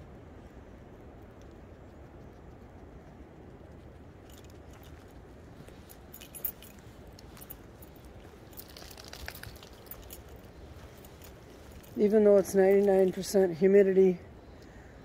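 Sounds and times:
low steady rumble: 0.0 - 15.0
footsteps on twigs crackling: 4.6 - 13.5.

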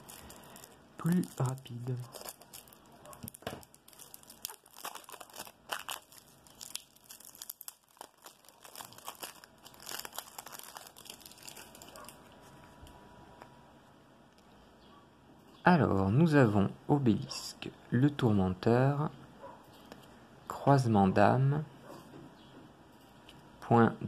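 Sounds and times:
cellophane crinkling and tearing: 0.0 - 12.7.

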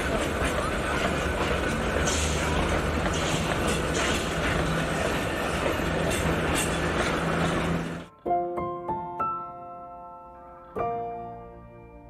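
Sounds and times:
train wheels rumbling on rail: 0.0 - 8.1
wheels clicking over rail joints: 0.0 - 8.1.

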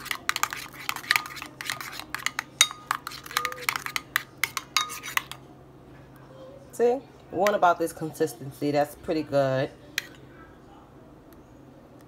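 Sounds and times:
metal spoon clinking in ceramic bowl: 0.0 - 5.4.

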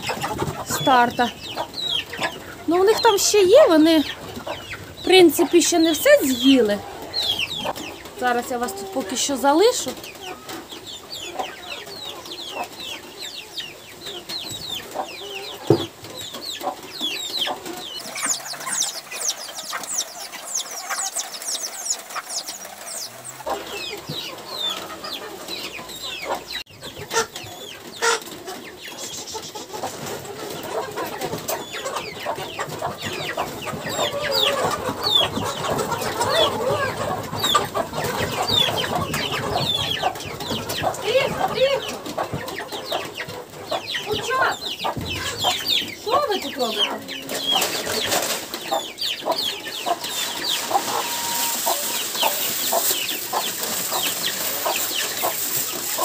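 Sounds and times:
chickens clucking: 0.0 - 56.0
chicks peeping: 0.0 - 56.0.

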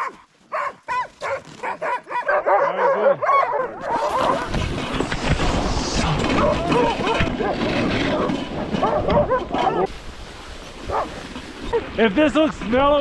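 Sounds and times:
sled dogs yipping and barking: 0.0 - 5.0, 6.4 - 12.1
sled runners hissing over snow: 3.7 - 13.0.

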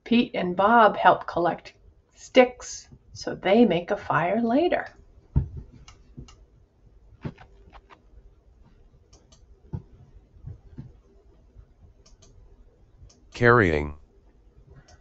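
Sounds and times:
computer mouse clicks: 5.6 - 6.4, 7.2 - 8.1, 9.1 - 10.0, 12.0 - 12.4.

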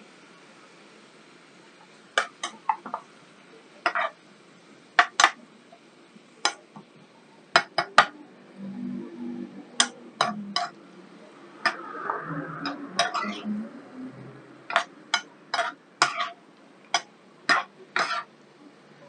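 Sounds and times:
spatula scraping frying pan: 2.2 - 3.1, 3.8 - 4.2, 9.7 - 10.8, 12.6 - 13.5, 14.7 - 18.3.

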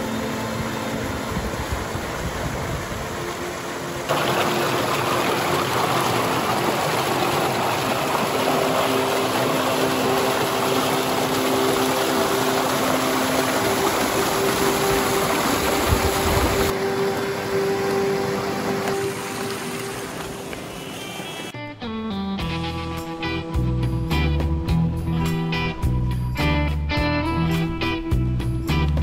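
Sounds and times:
small waterfall rushing: 0.0 - 21.6.

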